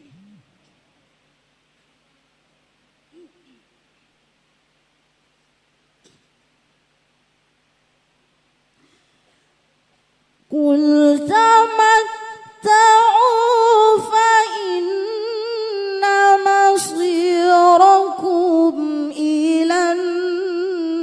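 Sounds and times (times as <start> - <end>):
woman chanting melodically: 10.6 - 21.0.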